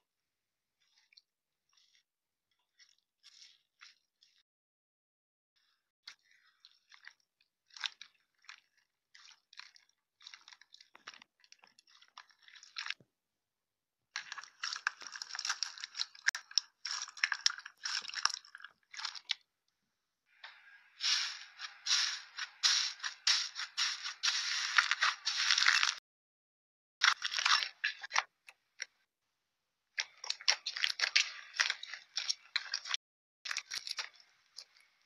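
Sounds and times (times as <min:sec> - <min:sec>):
hands squeezing crunchy slime: 0:06.0 - 0:13.0, 0:14.2 - 0:19.4, 0:20.5 - 0:26.0, 0:27.0 - 0:28.9, 0:30.0 - 0:35.0.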